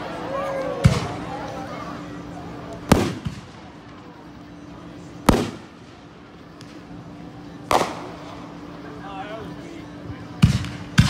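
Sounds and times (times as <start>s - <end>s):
fireworks bangs: 2.8s - 4.2s, 5.2s - 6.8s, 7.6s - 8.6s.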